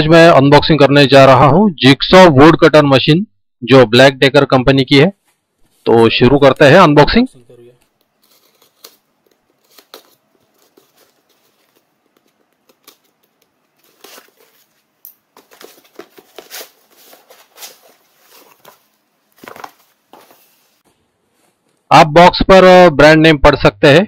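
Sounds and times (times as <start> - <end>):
knife slitting tape and cardboard: 8.2 - 14.8
cardboard rustling and scraping: 8.2 - 20.8.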